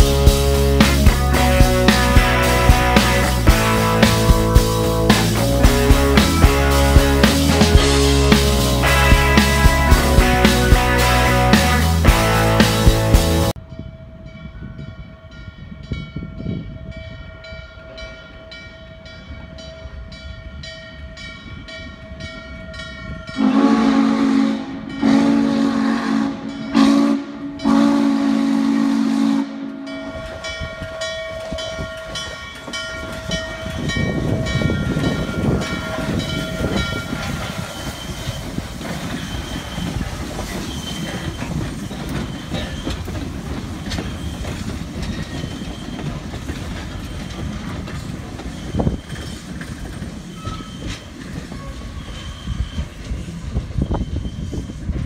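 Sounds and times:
locomotive bell ringing: 0:00.0 - 0:29.0, 0:29.6 - 0:54.5
steam locomotive running gear and exhaust: 0:00.0 - 0:55.0
steam chime whistle blasts: 0:23.3 - 0:31.1, 0:33.3 - 0:43.1, 0:50.3 - 0:54.9.

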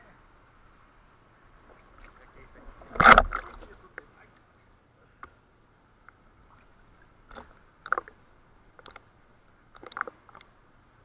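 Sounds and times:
small water splashes: 0:01.8 - 0:04.0, 0:06.1 - 0:10.6
crackling clicks underwater: 0:02.9 - 0:04.5, 0:07.2 - 0:09.1, 0:09.7 - 0:10.6.

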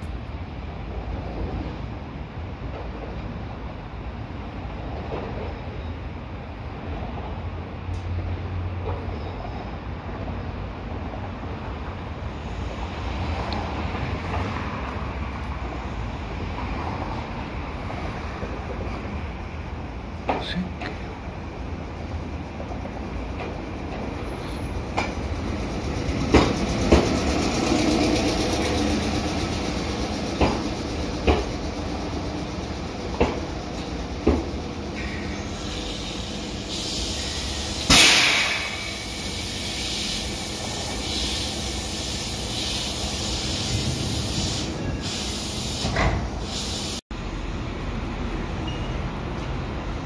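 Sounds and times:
electric train rumbling: 0:00.0 - 0:50.0
wheels clacking over rail joints: 0:22.6 - 0:36.8.

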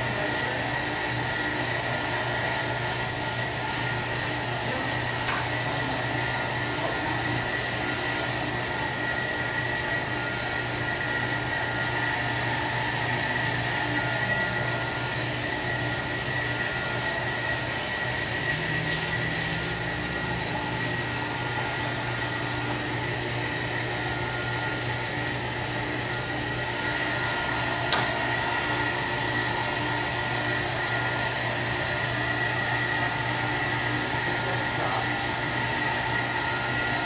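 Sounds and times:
electric blower whirring: 0:00.0 - 0:37.0.

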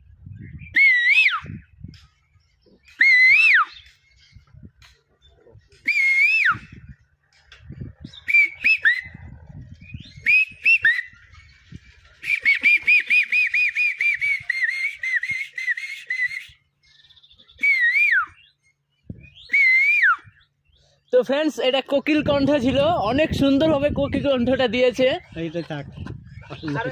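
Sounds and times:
man whistling bird call: 0:00.4 - 0:01.9, 0:02.8 - 0:04.0, 0:05.7 - 0:06.9, 0:08.1 - 0:11.5, 0:12.1 - 0:16.7, 0:17.4 - 0:20.5.

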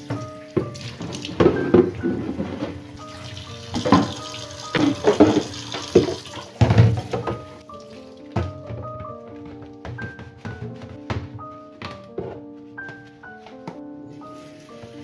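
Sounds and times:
water splashing: 0:00.0 - 0:08.2
light background music: 0:00.0 - 0:15.0
faucet running into metal sink: 0:03.0 - 0:07.3.

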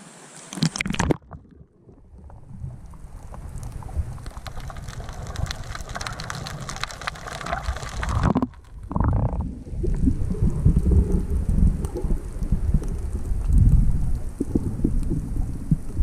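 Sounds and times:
muffled underwater movement: 0:00.1 - 0:16.0
small clicks underwater: 0:00.4 - 0:16.0.

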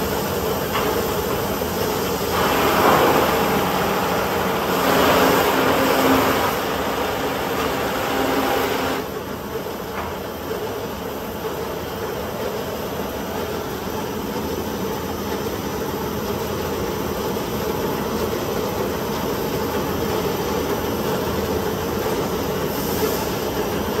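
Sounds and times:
sanding machine humming: 0:01.4 - 0:09.5.

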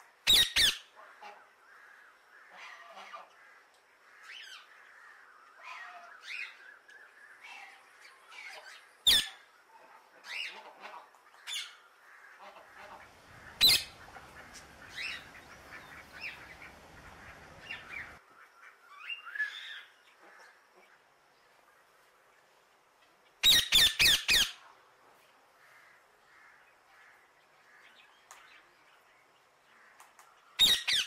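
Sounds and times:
parakeet chirping and squawking: 0:12.8 - 0:18.2.

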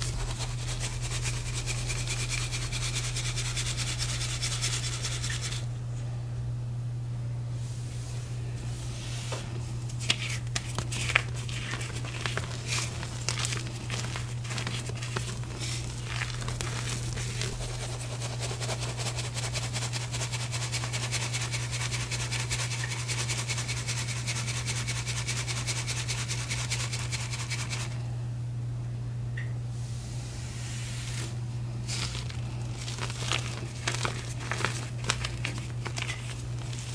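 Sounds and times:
chalk crunching in metal sieve: 0:00.0 - 0:05.7, 0:10.0 - 0:28.0, 0:30.9 - 0:36.9
steady low hum: 0:00.0 - 0:36.9
sieve rattling: 0:10.7 - 0:20.8, 0:31.9 - 0:36.9.

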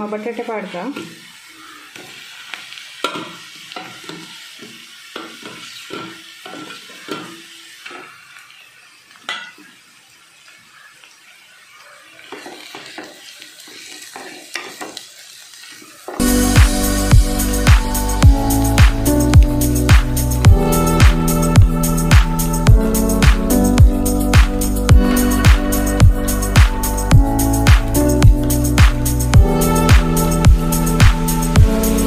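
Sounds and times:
light sizzling of frying: 0:00.0 - 0:32.0
spatula scraping a pan: 0:00.6 - 0:08.4.

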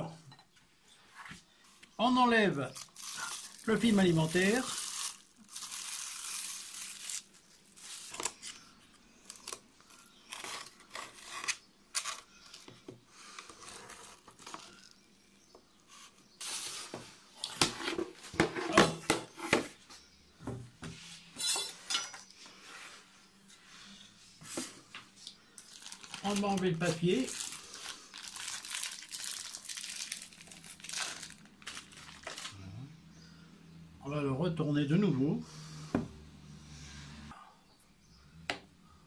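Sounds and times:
cling film crinkling: 0:02.5 - 0:12.7, 0:25.2 - 0:32.6.

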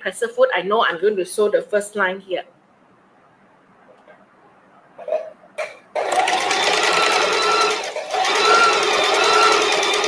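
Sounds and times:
sewing machine stitching: 0:06.0 - 0:10.0.

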